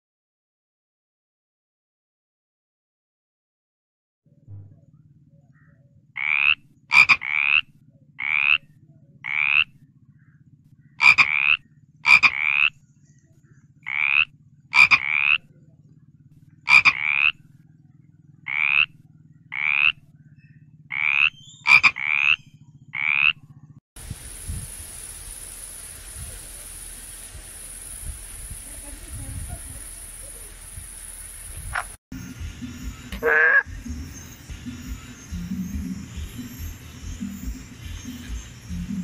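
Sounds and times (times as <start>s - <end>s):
frog croaking: 5.5s - 12.8s, 13.8s - 17.7s, 18.3s - 23.8s, 25.1s - 32.0s, 33.1s - 33.9s.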